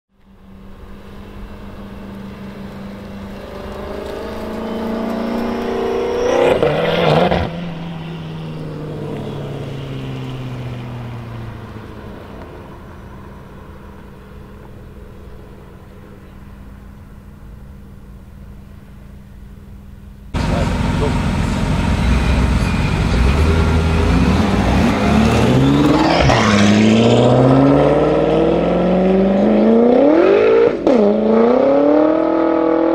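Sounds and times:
car engine revving past: 0:01.1 - 0:13.7, 0:20.4 - 0:32.9.

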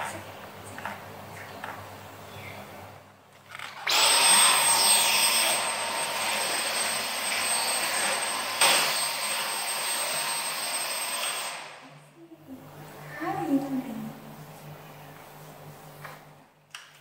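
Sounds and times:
stick vacuum cleaner whining: 0:03.5 - 0:11.7.

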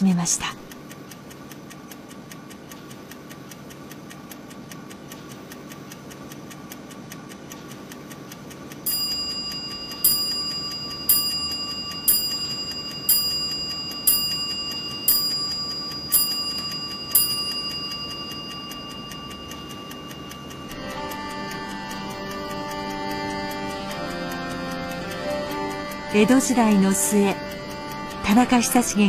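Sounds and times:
mechanical clock ticking: 0:00.0 - 0:29.0
clock bell striking: 0:08.9 - 0:29.0.

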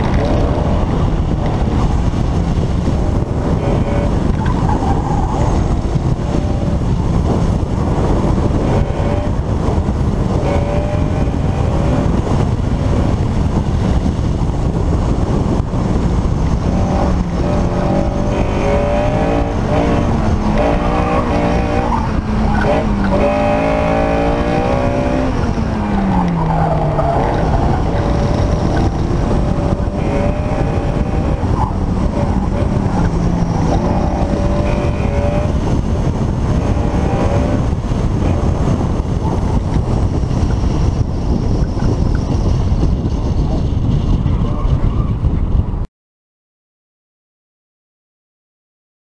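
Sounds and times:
car engine revving hard: 0:00.0 - 0:01.4, 0:02.6 - 0:15.9, 0:16.6 - 0:39.6
wind buffeting microphone: 0:00.0 - 0:45.9.

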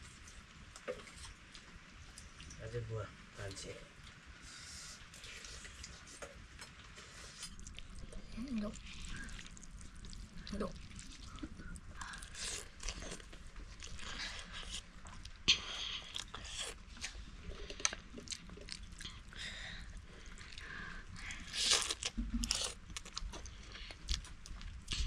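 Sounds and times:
person chewing and crunching food: 0:05.0 - 0:25.0.

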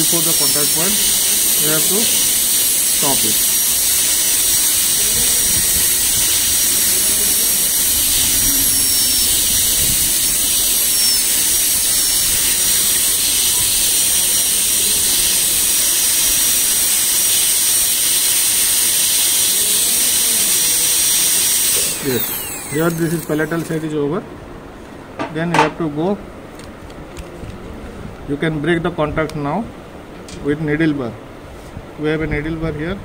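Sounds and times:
dental drill hiss and whine: 0:00.0 - 0:24.0.

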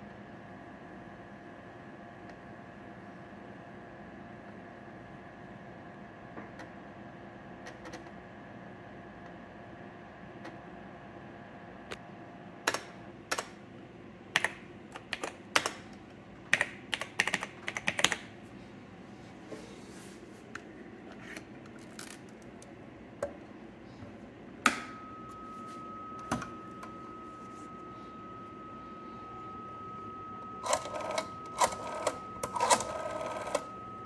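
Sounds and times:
laptop keyboard typing: 0:14.4 - 0:18.3
steady high tone: 0:24.7 - 0:34.0.

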